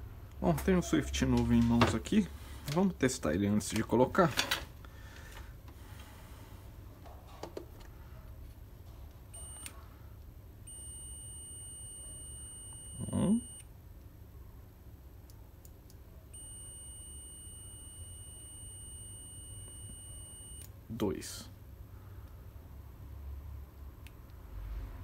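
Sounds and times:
multimeter continuity beep: 9.4 - 9.8, 10.6 - 13.7, 16.3 - 20.7.

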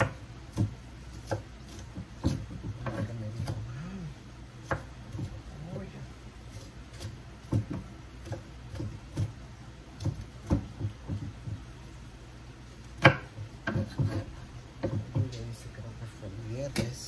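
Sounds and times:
knife chopping on wooden board: 0.0 - 3.7, 4.6 - 5.5, 6.5 - 11.7, 13.0 - 15.4.

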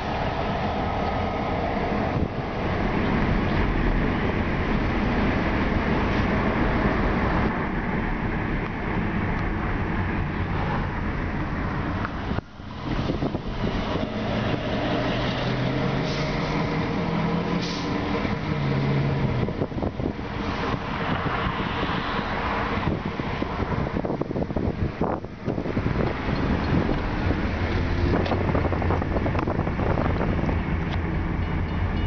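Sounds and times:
wind on microphone: 0.0 - 31.9
road and engine noise in car: 0.0 - 32.0
diesel locomotive engine running: 24.5 - 32.0.

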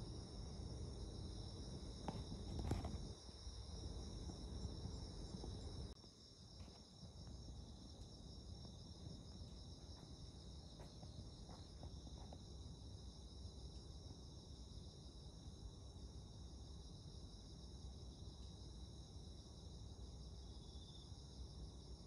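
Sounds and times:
low background rumble: 0.0 - 6.0
crickets chirping: 0.0 - 22.0.

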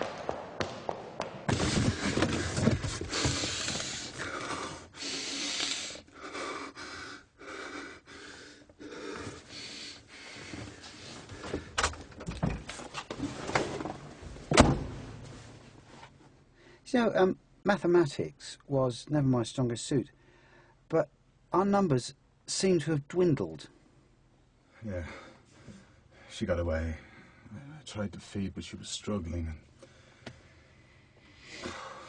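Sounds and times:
person breathing hard: 1.5 - 11.8, 20.2 - 20.8, 29.8 - 32.0.

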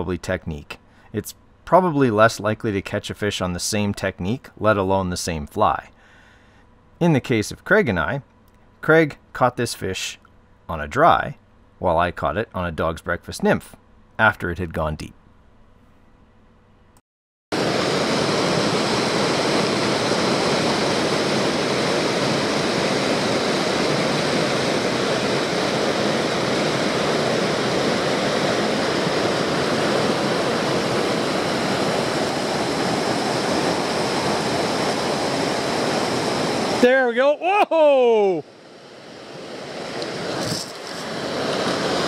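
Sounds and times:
stream rushing over rocks: 39.8 - 42.0.

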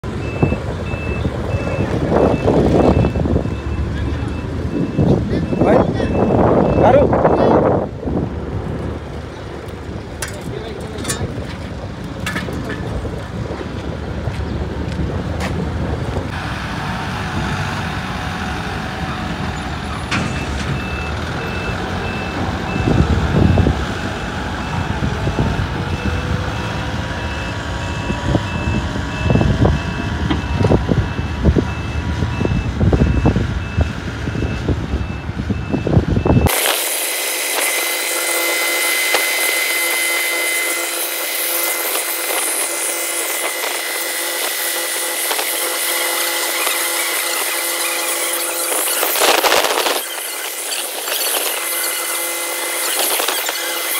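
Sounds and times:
diesel engine running: 0.0 - 53.9
reversing alarm beeping: 0.1 - 7.6, 20.1 - 53.9
steady machine whine: 36.4 - 53.9.

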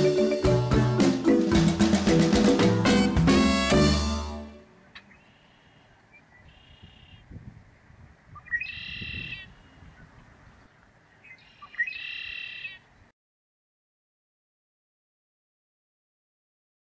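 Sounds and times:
blackbird singing: 4.9 - 7.4, 8.3 - 13.0.

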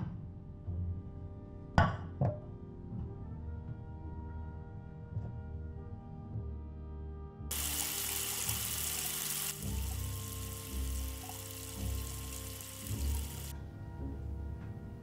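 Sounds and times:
background music: 0.0 - 15.0
tap water running into saucepan: 7.5 - 13.5.

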